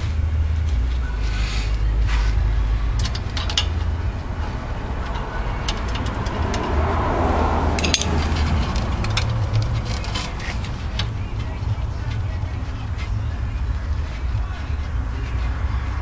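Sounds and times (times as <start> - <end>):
steady low hum: 0.0 - 16.0
hand tools clinking on metal: 2.9 - 3.9, 7.8 - 11.2.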